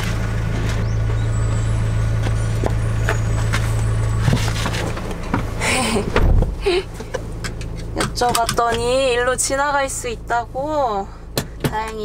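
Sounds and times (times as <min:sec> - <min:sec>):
vehicle engine idling: 0:00.0 - 0:12.0
thumps of person climbing into car: 0:04.2 - 0:07.2.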